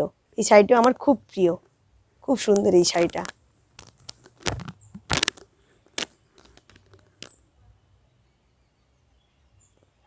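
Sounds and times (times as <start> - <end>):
fabric and wrapping crinkling: 2.3 - 7.4.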